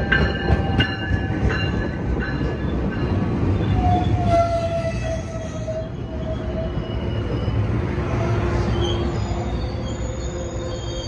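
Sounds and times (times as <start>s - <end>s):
train wheels rumbling on rail: 0.0s - 11.0s
metallic squeals: 3.6s - 11.0s.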